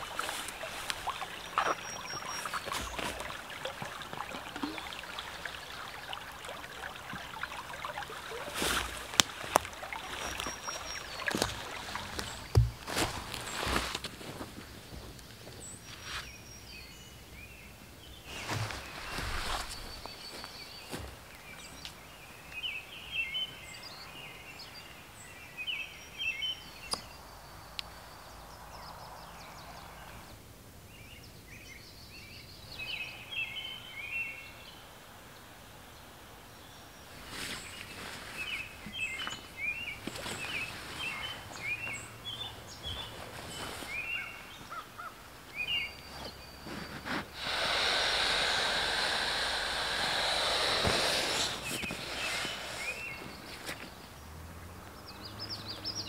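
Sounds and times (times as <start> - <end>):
songbirds singing: 0.0 - 56.0
air mattress deflating hiss: 47.3 - 53.4.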